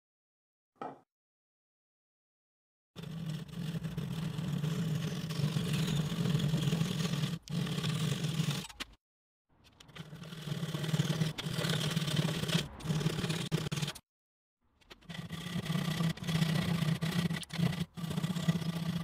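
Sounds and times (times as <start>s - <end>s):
router cutting wood: 15.0s - 19.0s.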